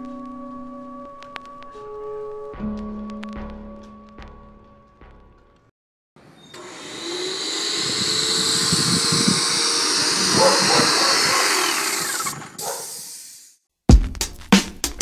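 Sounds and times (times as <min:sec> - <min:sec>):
paint sprayer hiss and motor: 0:06.4 - 0:13.6.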